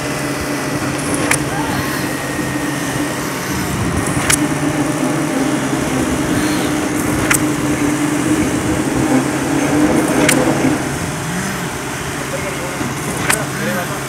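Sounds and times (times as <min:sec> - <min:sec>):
hoist machine hum: 0:00.0 - 0:14.0
sharp clicks: 0:00.8 - 0:02.3, 0:03.6 - 0:04.7, 0:06.2 - 0:07.8, 0:10.1 - 0:10.7, 0:13.1 - 0:13.6.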